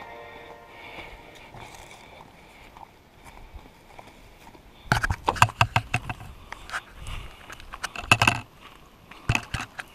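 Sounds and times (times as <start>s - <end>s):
footsteps on gravel: 0.0s - 5.4s.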